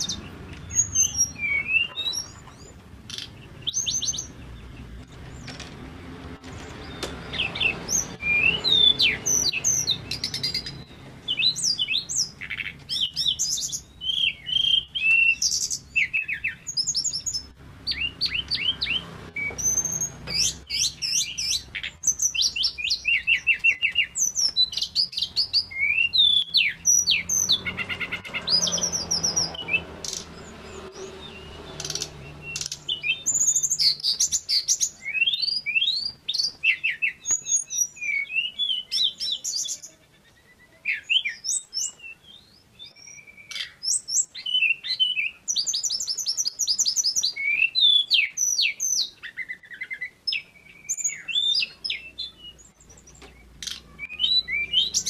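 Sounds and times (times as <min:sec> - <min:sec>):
bird singing whistles and trills: 0:00.0 - 0:05.5, 0:06.8 - 0:55.0.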